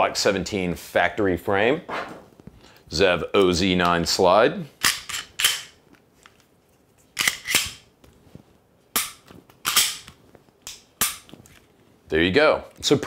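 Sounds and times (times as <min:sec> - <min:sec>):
pistol slide clacking: 0:04.8 - 0:05.8, 0:07.2 - 0:07.9, 0:09.0 - 0:11.4.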